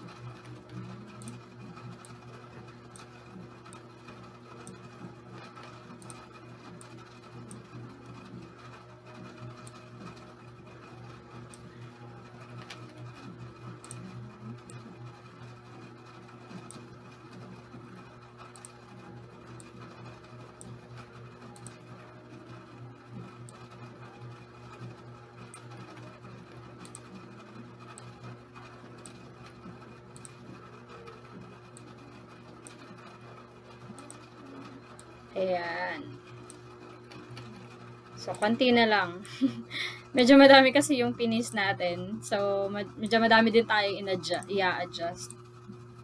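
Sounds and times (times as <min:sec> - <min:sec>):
low electrical hum: 0:00.0 - 0:46.0
computer mouse clicks: 0:00.7 - 0:02.2, 0:05.4 - 0:06.2, 0:18.5 - 0:18.8, 0:21.6 - 0:21.8, 0:26.8 - 0:27.1, 0:30.1 - 0:30.4, 0:33.9 - 0:35.1.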